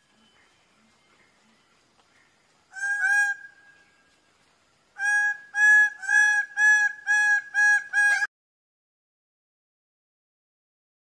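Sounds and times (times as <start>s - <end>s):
bird loud calls: 2.2s - 3.8s.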